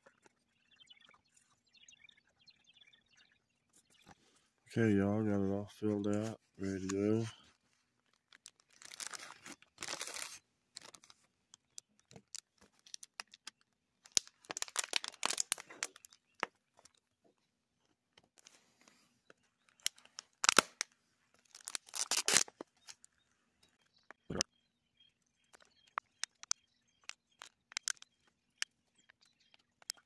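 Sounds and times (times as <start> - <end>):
plastic bag and bottle crinkling: 8.0 - 16.9, 19.7 - 23.1
sharp clicks: 25.5 - 30.0.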